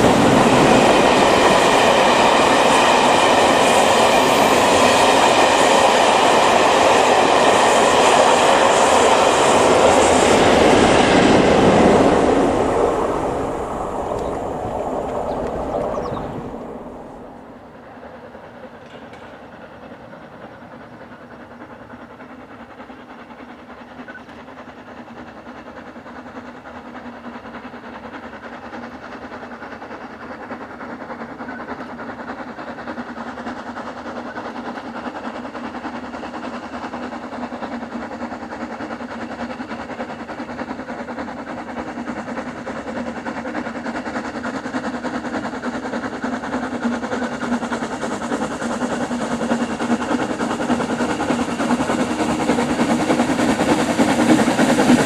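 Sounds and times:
steam locomotive exhaust: 0:00.0 - 0:55.0.

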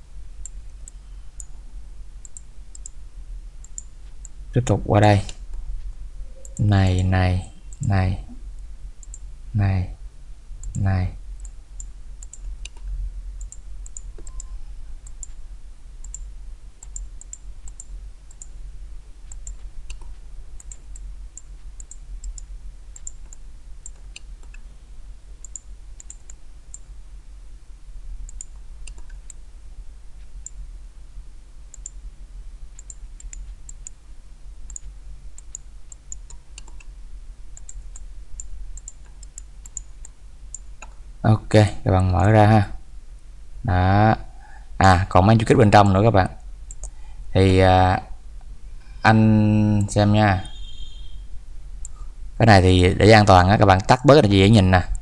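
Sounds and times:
steady low hum: 0:00.0 - 0:55.0
computer mouse clicking: 0:02.2 - 0:03.0, 0:03.6 - 0:04.4, 0:09.0 - 0:09.2, 0:11.4 - 0:15.4, 0:16.0 - 0:18.5, 0:19.2 - 0:24.6, 0:25.4 - 0:26.9, 0:28.3 - 0:29.4, 0:31.7 - 0:32.0, 0:32.8 - 0:34.0, 0:34.7 - 0:36.9, 0:37.6 - 0:41.0, 0:46.7 - 0:47.0.

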